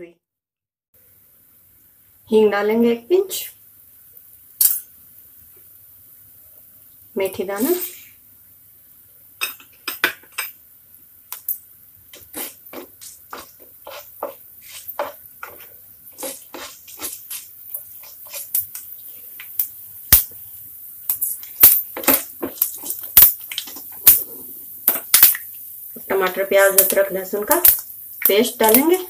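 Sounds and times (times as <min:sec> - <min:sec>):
spatula knocking and scraping pan: 0:09.4 - 0:10.6, 0:12.1 - 0:19.5, 0:21.2 - 0:25.2.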